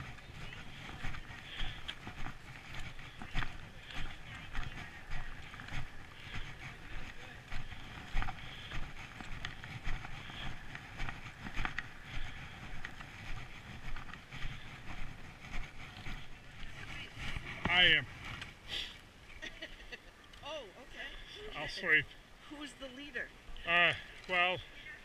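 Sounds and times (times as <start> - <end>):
footsteps on packed snow: 0.0 - 18.9.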